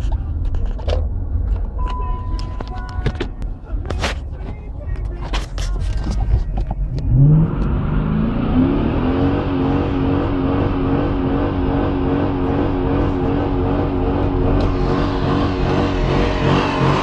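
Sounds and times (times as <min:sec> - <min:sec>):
road and tyre noise: 0:00.0 - 0:17.0
car engine accelerating: 0:06.2 - 0:17.0.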